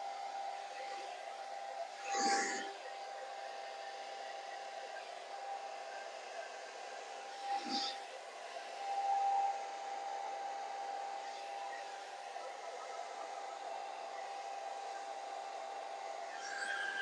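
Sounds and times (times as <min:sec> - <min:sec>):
hair dryer running: 0:00.0 - 0:17.0.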